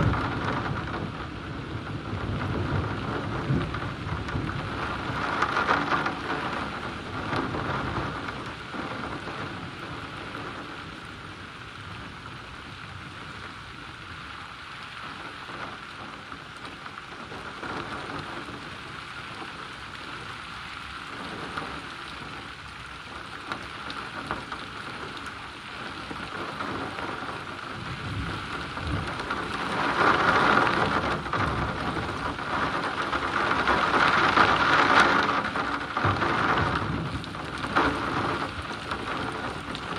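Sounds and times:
thunder rumbling: 0.0 - 10.6, 26.3 - 39.9
heavy rain falling: 0.0 - 39.9.

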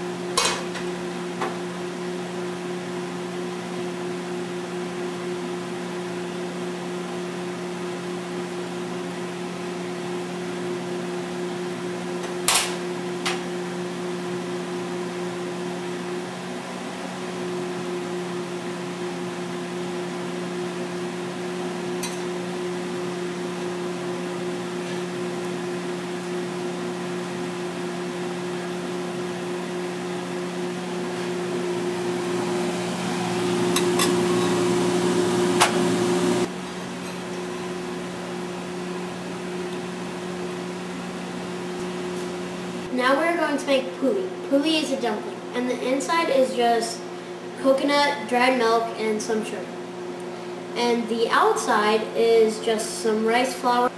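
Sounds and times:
appliance fan hum: 0.0 - 53.9.

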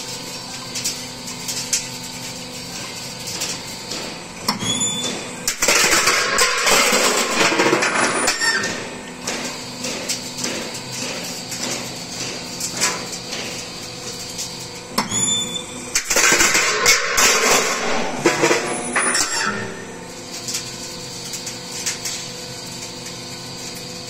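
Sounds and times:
roll-forming machine running: 0.0 - 24.0
shear cutting metal with squeals: 4.5 - 9.2, 14.3 - 21.6.

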